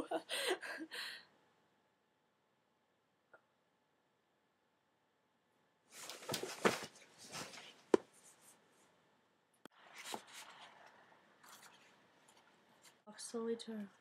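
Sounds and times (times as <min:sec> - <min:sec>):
handling rustling and knocks: 0:06.0 - 0:08.5.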